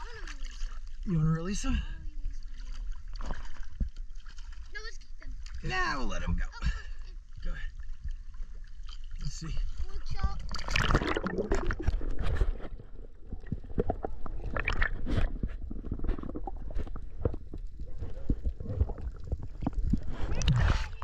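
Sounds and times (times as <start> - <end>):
underwater rumble of moving water: 0.0 - 21.0
water rush: 7.4 - 17.3.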